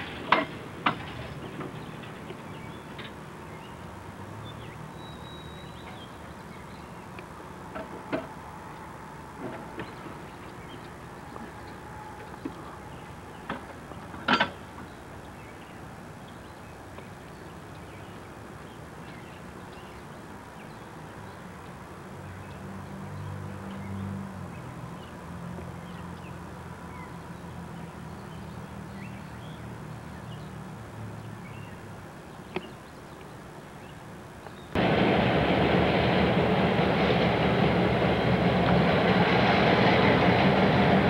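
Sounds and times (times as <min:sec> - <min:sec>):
railroad switch metallic clank: 0:00.0 - 0:03.8, 0:05.0 - 0:06.2, 0:07.6 - 0:14.9, 0:34.8 - 0:41.0
train engine drone: 0:00.0 - 0:31.0, 0:34.1 - 0:41.0.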